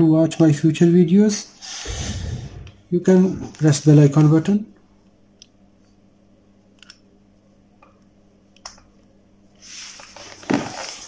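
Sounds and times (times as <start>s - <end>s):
phone scuffing on paper: 9.6s - 11.0s.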